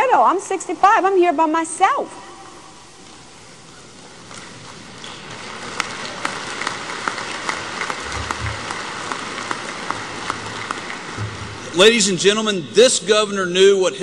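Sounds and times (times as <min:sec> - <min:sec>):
audience applauding: 0:04.5 - 0:12.1.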